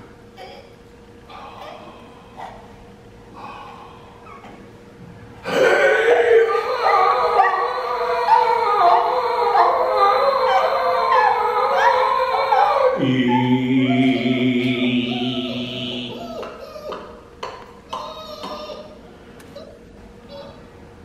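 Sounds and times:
men wailing wordless vocals: 0:05.4 - 0:16.6.

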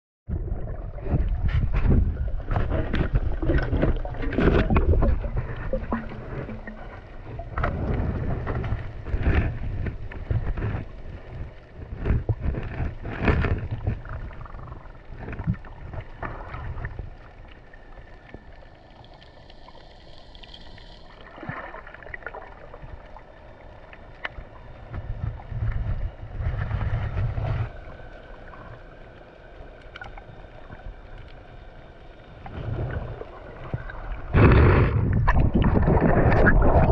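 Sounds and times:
underwater knocks and clicks: 0:00.3 - 0:18.6, 0:32.4 - 0:36.9
underwater rumble of water: 0:00.3 - 0:36.9.

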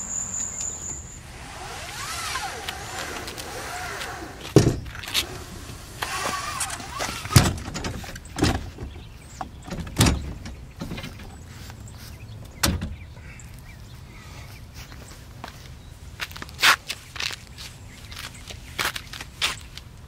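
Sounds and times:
brief squeak: 0:00.0 - 0:01.2.

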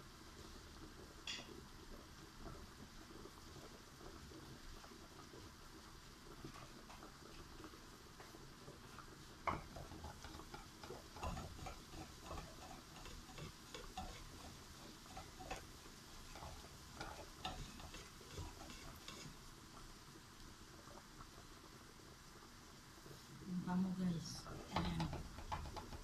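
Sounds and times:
frying pan knocking on stove grate: 0:09.4 - 0:15.6, 0:24.8 - 0:26.0.

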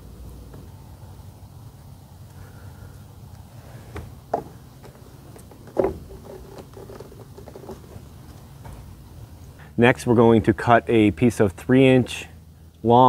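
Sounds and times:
plastic pipe fittings knocking: 0:04.0 - 0:09.0.

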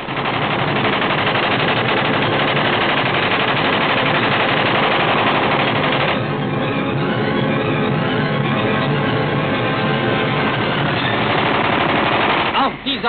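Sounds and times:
rapid machine gun burst: 0:00.0 - 0:06.3, 0:10.4 - 0:12.8.

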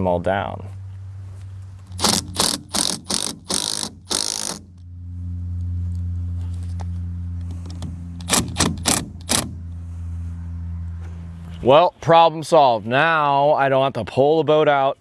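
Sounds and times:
steady low hum: 0:00.0 - 0:14.1
impact driver bursts: 0:01.9 - 0:04.7, 0:07.7 - 0:09.6.

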